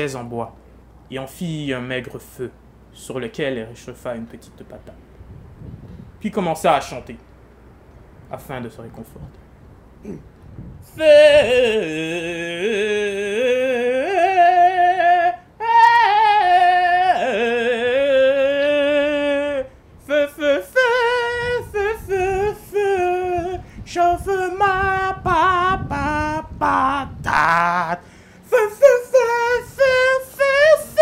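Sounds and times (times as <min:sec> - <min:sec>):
person singing unaccompanied: 0:10.0 - 0:31.0.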